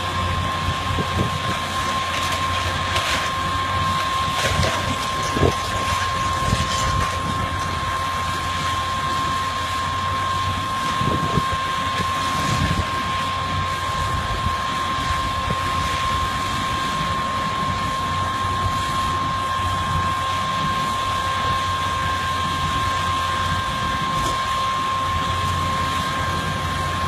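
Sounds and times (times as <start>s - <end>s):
demolition machinery running: 0.0s - 27.0s
debris breaking: 4.0s - 7.7s.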